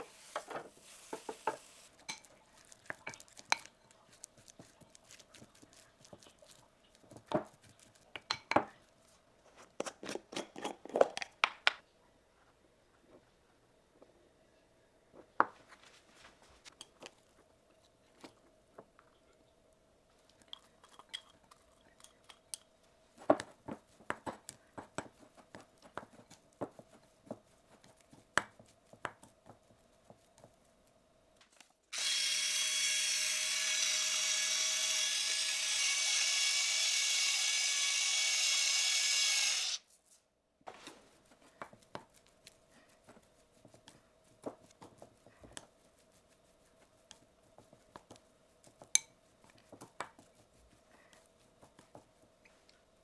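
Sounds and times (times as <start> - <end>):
small appliance motor whine: 31.9 - 39.9.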